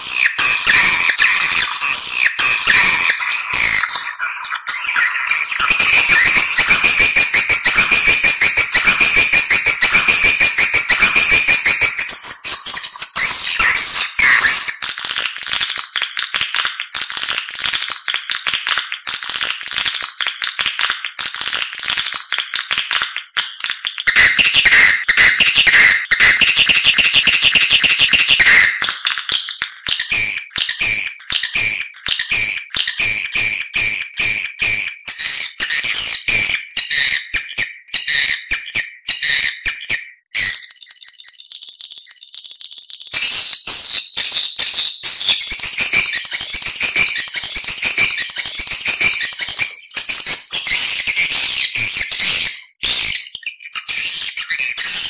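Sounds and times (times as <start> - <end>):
swiftlet chittering calls: 0.0 - 12.2
swiftlets chirping and twittering: 0.0 - 16.0, 30.0 - 55.0.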